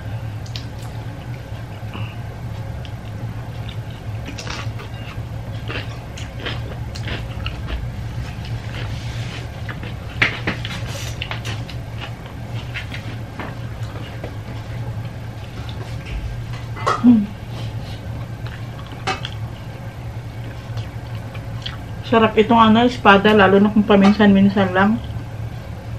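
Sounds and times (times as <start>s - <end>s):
steady low hum: 0.0s - 25.9s
chewing and lip-smacking: 2.8s - 14.7s, 18.2s - 19.5s, 20.4s - 22.0s.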